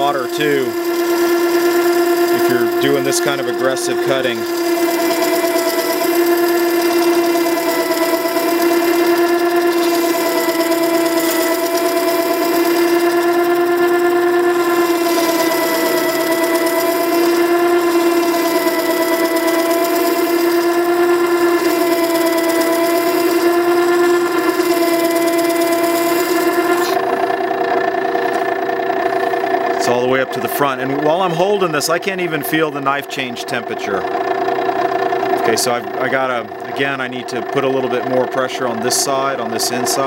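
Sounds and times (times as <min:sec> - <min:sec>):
grinder motor humming: 0:00.0 - 0:40.0.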